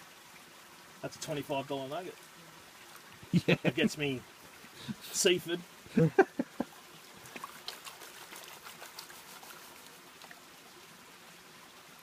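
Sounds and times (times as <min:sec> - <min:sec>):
water sloshing and trickling: 0:00.0 - 0:12.0
small water splashes: 0:05.7 - 0:12.0.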